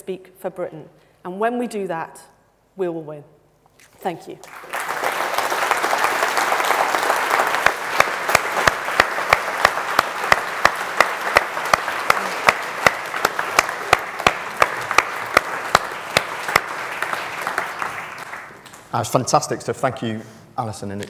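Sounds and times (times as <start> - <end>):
hands clapping close by: 4.5 - 18.9
audience applauding: 4.5 - 19.1.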